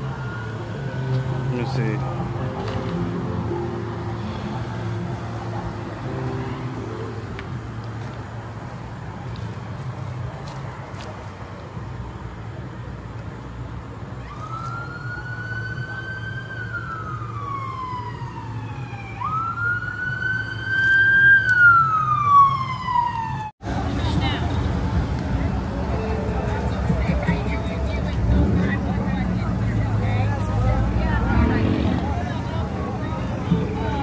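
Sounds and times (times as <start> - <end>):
siren wailing: 14.2 - 23.5.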